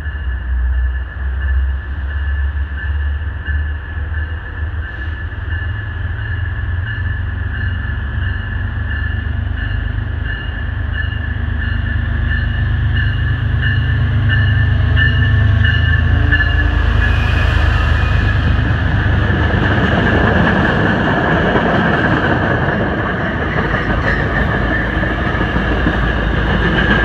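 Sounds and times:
pulsing high tone: 0.0s - 20.4s
diesel locomotive rumble: 0.0s - 27.0s.

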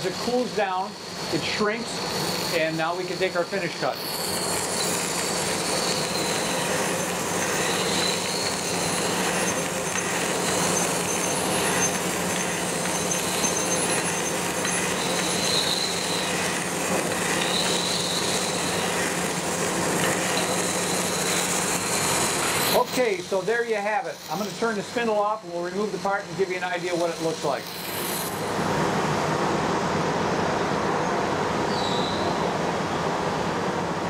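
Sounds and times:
spindle hum: 0.0s - 24.6s
grinding hiss: 0.0s - 28.7s
high squealing tone: 0.9s - 24.9s.

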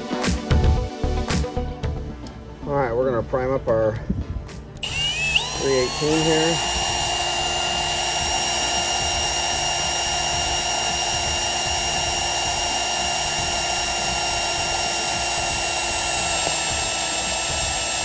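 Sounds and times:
cordless drill whining: 4.8s - 18.0s.

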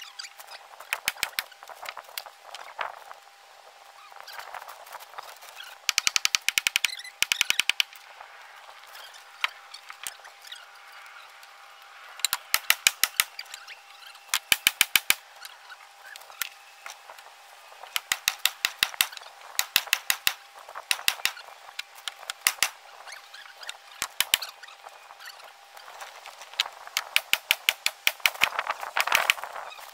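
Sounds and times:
hammer striking wood: 17.9s - 21.4s.

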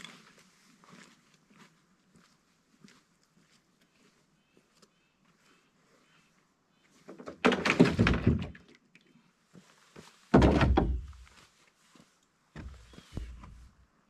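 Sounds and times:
knocking and rustling: 10.0s - 11.3s.

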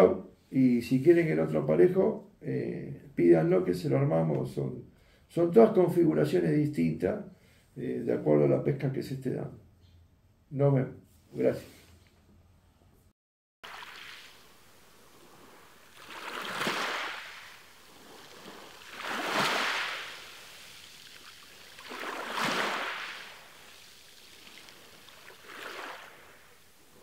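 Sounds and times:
low steady water wash: 13.6s - 27.0s
waves of rushing water: 13.6s - 27.0s.

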